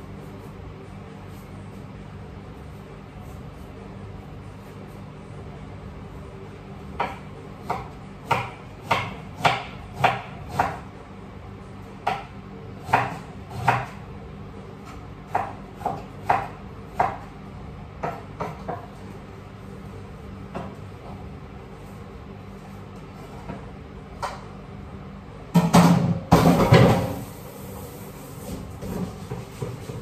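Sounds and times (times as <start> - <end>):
knife chopping on cutting board: 7.0 - 10.8, 12.0 - 14.0, 14.8 - 17.3, 18.0 - 18.9.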